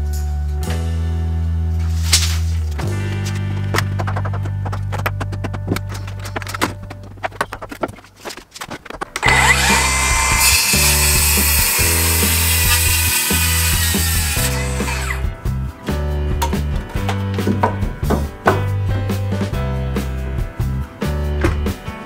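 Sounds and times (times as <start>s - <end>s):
background music: 0.0s - 8.2s, 9.1s - 22.0s
circular saw cutting timber: 9.2s - 15.2s.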